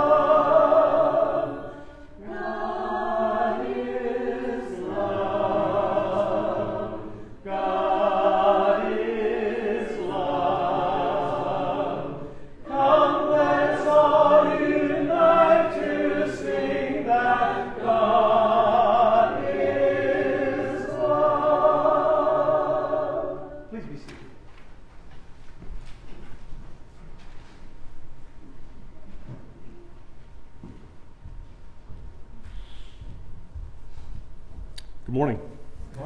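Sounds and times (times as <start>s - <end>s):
congregation singing a hymn: 0.0s - 24.4s.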